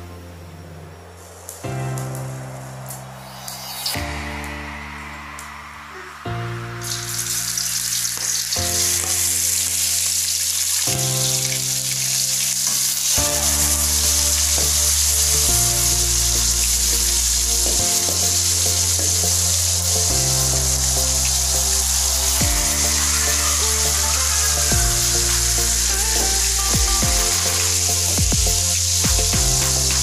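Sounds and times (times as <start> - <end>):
background music: 0.0 - 30.0
fish sizzling in hot oil: 2.8 - 30.0.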